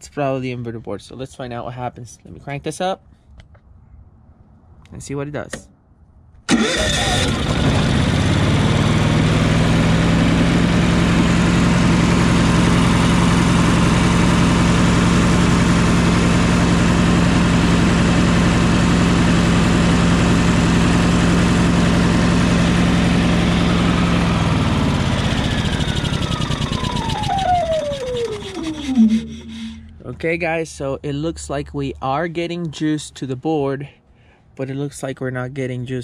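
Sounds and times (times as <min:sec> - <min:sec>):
generator engine running: 0:06.5 - 0:30.0
engine winding down whine: 0:06.5 - 0:30.2.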